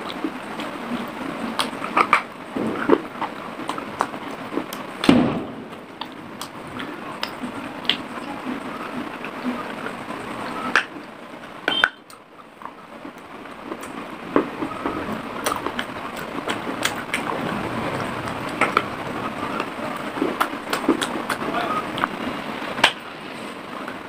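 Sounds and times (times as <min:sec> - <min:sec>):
clay pieces being chewed crunchily: 0:00.0 - 0:08.2, 0:10.6 - 0:17.6.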